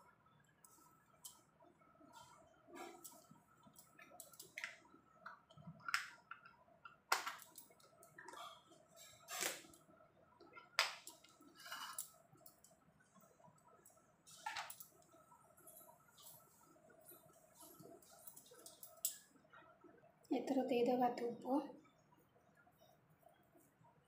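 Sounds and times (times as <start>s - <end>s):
faint steady hum: 0.0s - 24.0s
small objects clicking and scraping: 2.8s - 9.8s, 10.8s - 12.8s, 13.9s - 15.0s, 17.1s - 19.3s.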